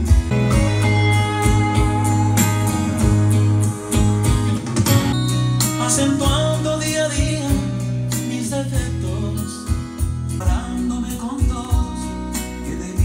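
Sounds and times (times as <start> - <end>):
song with guitar and bass: 0.0 - 13.0.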